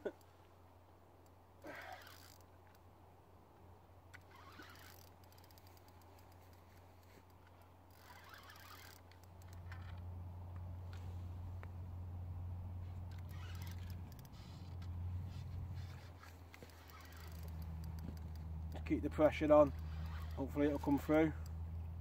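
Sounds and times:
steady low hum: 0.0s - 22.0s
fishing reel clicks: 1.2s - 2.8s, 4.1s - 6.6s, 7.2s - 10.0s, 13.0s - 21.6s
faint rustling: 4.1s - 11.9s, 12.6s - 21.5s.

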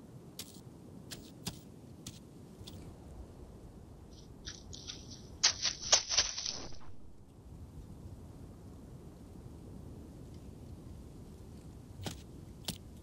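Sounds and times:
dry leaves crunching underfoot: 4.7s - 7.2s.

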